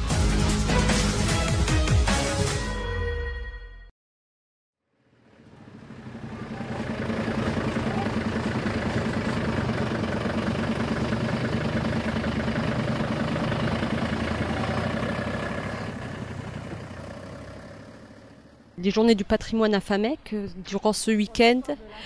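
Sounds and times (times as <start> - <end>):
train engine driving by: 5.1 - 20.8.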